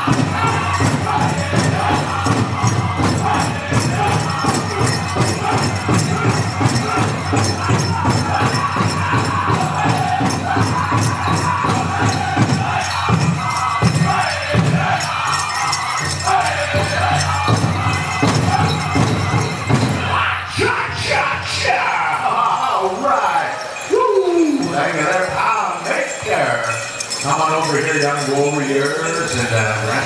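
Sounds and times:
steady beat on big drum: 0.0 - 15.3, 16.0 - 20.2
group singing in high voices: 0.0 - 30.0.

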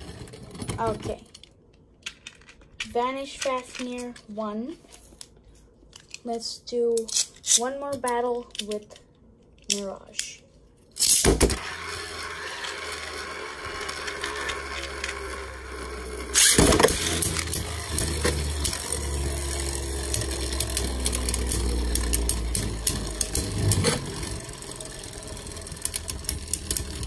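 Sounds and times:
spinning tops launching: 11.0 - 27.0
spinning tops humming: 11.6 - 27.0
small clicks: 20.0 - 24.1.

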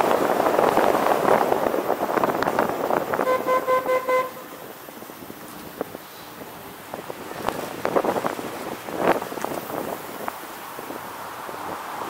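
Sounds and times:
wind buffeting microphone: 0.0 - 12.0
car horn: 3.2 - 4.6.

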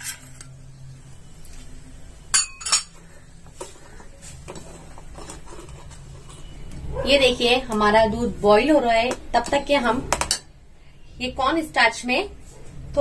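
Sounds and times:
ladle clinking against steel pot: 2.3 - 3.0.

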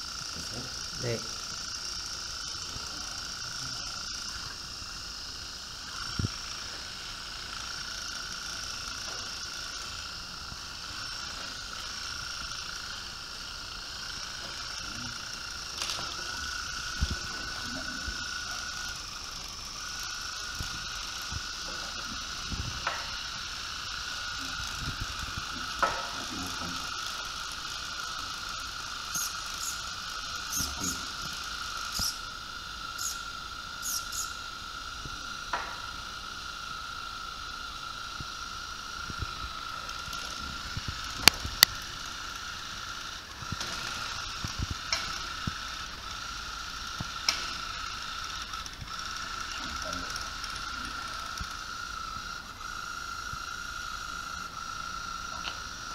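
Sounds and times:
servo motors whining: 0.0 - 55.9.

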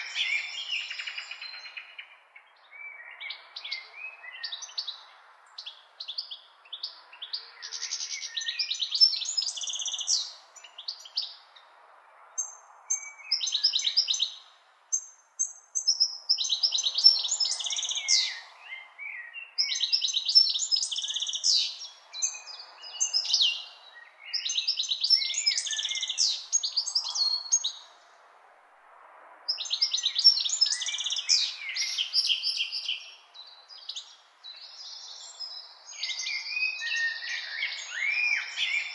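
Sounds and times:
songbird warbling: 5.6 - 11.4, 12.4 - 27.9, 29.5 - 38.9.

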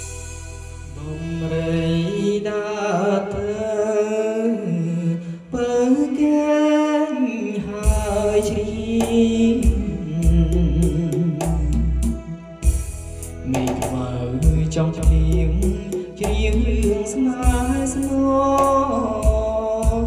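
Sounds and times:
deep bass and drum beat: 0.0 - 2.0, 7.8 - 20.0
karaoke backing track: 0.0 - 20.0
man singing into microphone: 0.9 - 12.7, 13.4 - 20.0.

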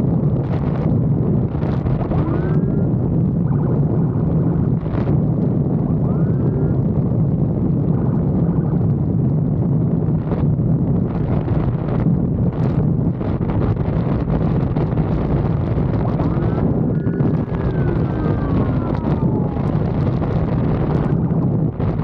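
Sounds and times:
motorcycle engine drone: 0.0 - 22.0
wind rushing over microphone: 0.0 - 22.0
rising siren whoops: 16.2 - 20.0.

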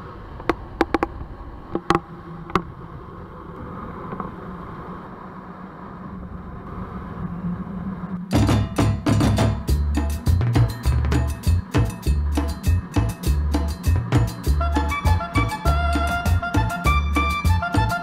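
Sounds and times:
loud percussive music: 8.3 - 18.0.

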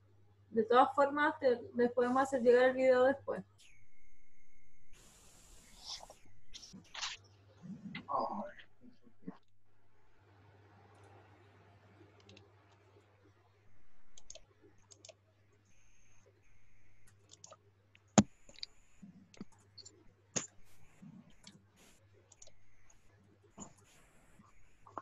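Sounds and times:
faint electrical hum: 0.0 - 25.0
mouse and keyboard clicks: 14.1 - 15.2, 17.1 - 20.6, 22.3 - 22.6.

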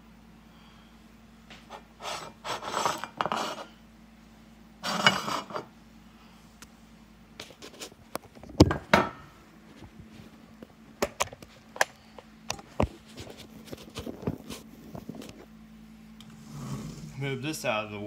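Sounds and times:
kitchen items scraping on counter: 1.7 - 3.8, 4.8 - 5.7, 16.3 - 17.2.

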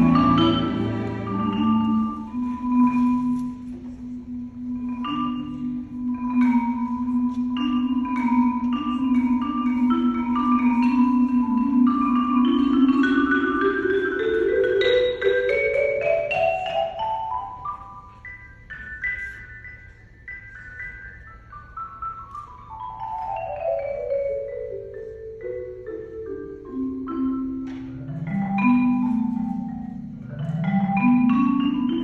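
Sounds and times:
marimba: 0.0 - 32.0.

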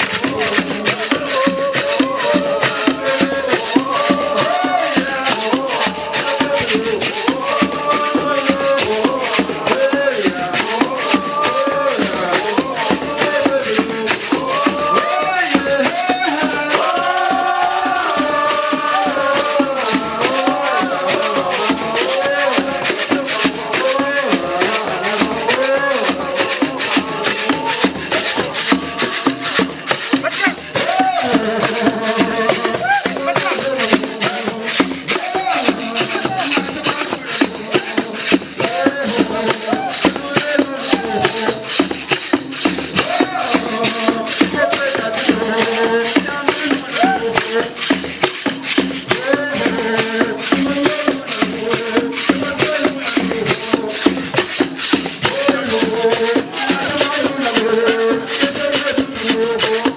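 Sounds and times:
people singing: 0.0 - 59.9
rattles shaken in rhythm: 0.0 - 59.9.

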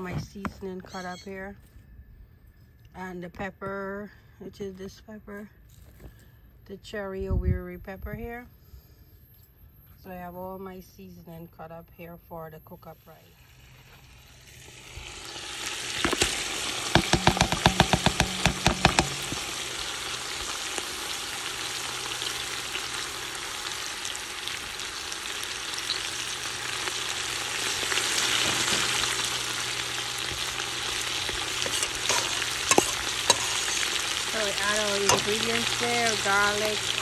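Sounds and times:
meat sizzling in a pot: 13.3 - 37.0
rapid knocks: 17.0 - 19.4.

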